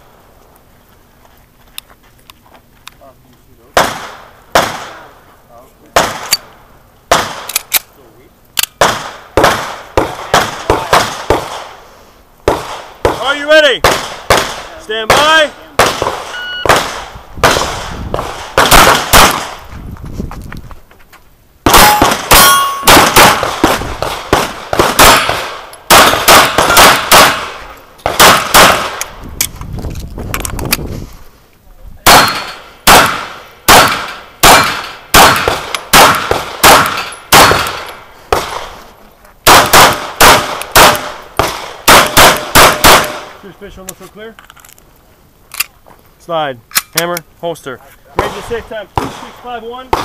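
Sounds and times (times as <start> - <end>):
pistol shots: 3.8 - 5.2, 6.0 - 6.5, 7.1 - 7.8, 8.7 - 11.8, 12.4 - 19.6, 21.6 - 29.1, 32.0 - 38.8, 39.4 - 43.4, 48.2 - 50.0
ringing metal clang: 21.7 - 22.9.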